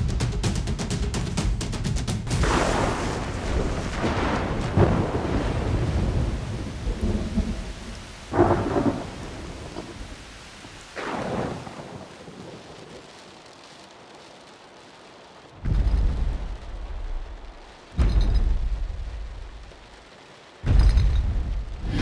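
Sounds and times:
steady rain: 0.0s - 22.0s
thunderclaps: 2.2s - 13.5s, 15.6s - 22.0s
rolling thunder: 2.3s - 13.0s, 15.6s - 19.9s, 20.6s - 22.0s.

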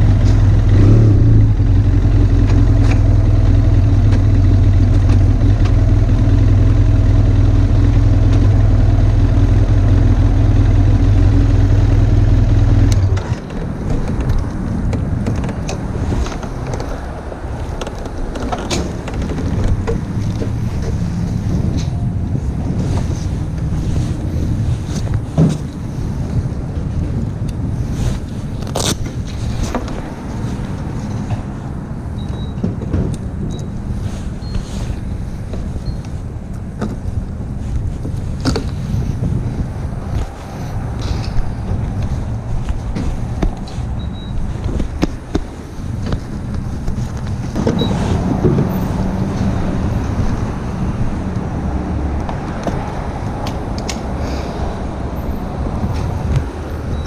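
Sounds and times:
motorcycle engine running: 0.0s - 13.3s.

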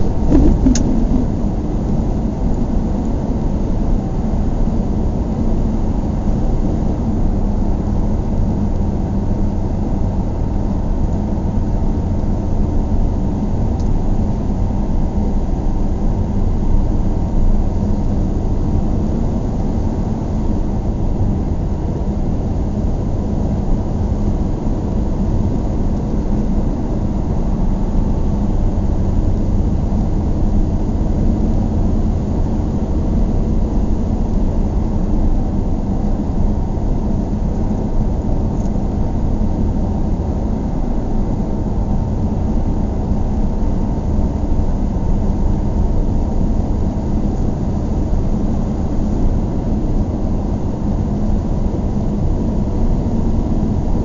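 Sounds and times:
car driving on highway: 0.0s - 2.4s.

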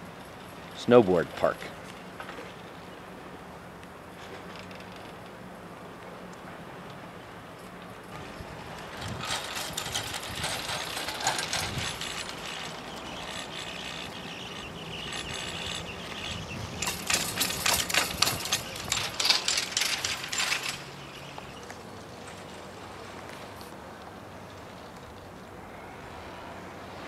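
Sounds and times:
chairlift cable clicking and rattling: 8.1s - 21.6s.

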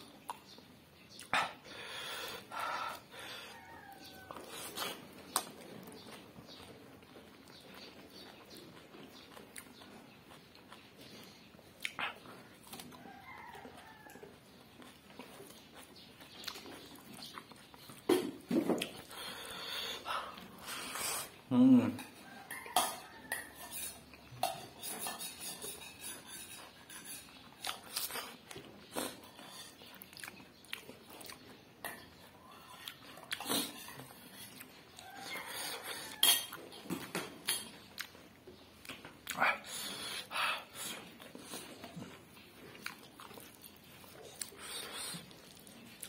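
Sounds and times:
chewing and mouth smacks: 0.0s - 1.7s, 3.9s - 21.4s, 27.0s - 46.0s
spoon clinking against plate: 22.0s - 27.3s, 36.0s - 36.6s.

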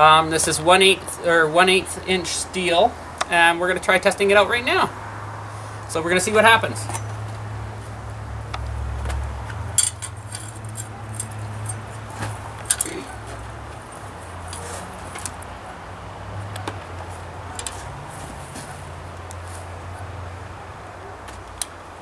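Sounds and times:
metal clinks on wood: 9.8s - 13.5s.

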